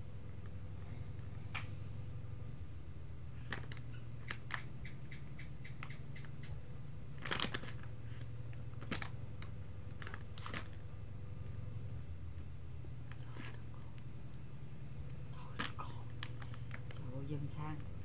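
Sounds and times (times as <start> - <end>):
plastic pack crinkling and rustling: 3.4 - 4.7, 7.2 - 10.9, 15.4 - 18.0.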